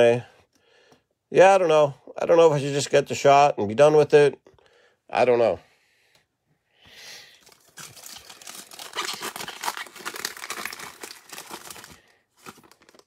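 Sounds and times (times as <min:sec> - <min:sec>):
foil wrapper crinkling: 0:07.3 - 0:13.0.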